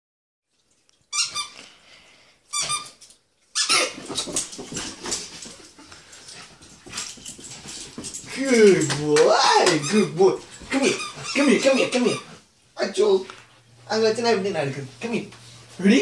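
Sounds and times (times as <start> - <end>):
busy scuffling noise: 4.0 - 12.1.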